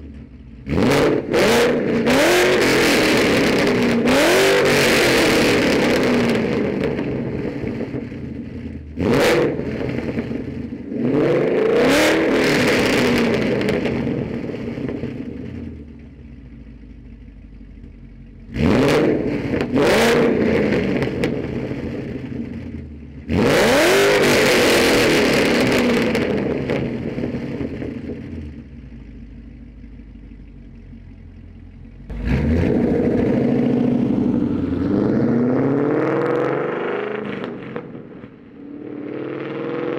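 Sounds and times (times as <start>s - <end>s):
car engine idling: 0.0s - 11.2s, 12.2s - 23.5s, 25.2s - 39.6s
car engine revving: 0.0s - 16.1s, 18.4s - 30.0s, 31.0s - 39.9s.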